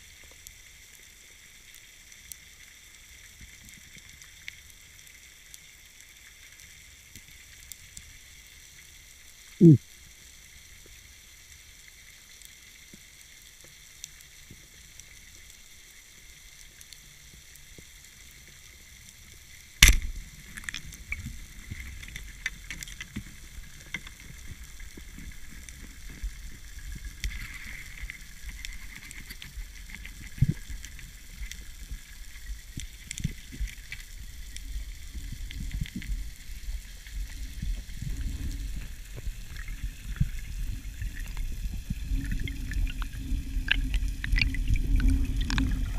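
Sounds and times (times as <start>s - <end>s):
underwater crackling hiss: 0.0s - 45.9s
speargun firing crack: 19.8s - 20.1s
water rumbling and knocks: 19.8s - 34.0s, 34.8s - 45.9s.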